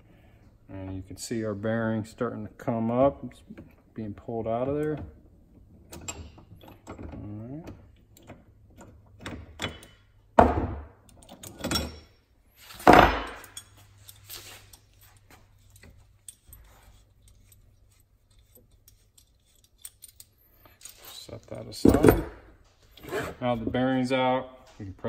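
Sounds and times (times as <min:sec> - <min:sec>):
metal parts clanking on workbench: 0:11.2 - 0:15.2, 0:21.8 - 0:22.4.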